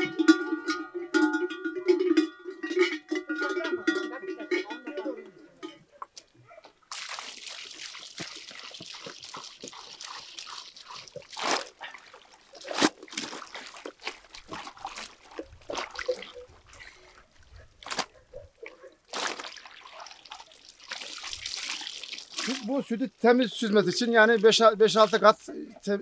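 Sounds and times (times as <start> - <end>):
splashes and knocks: 6.9 - 17.0, 19.1 - 22.8
milk trickling through a strainer: 6.9 - 17.5, 19.1 - 22.9.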